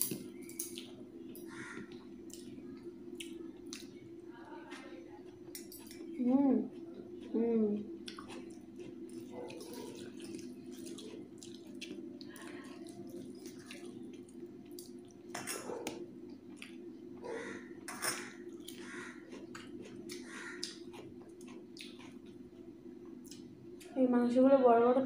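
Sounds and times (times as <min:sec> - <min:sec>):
fingers squelching wet food: 0:18.5 - 0:22.4.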